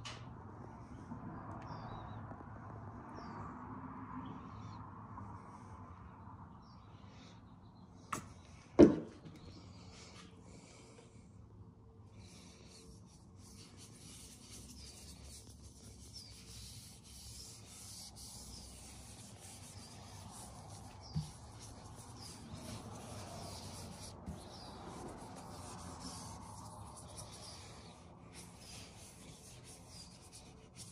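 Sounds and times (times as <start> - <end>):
glove swishing over wood: 15.8 - 30.9.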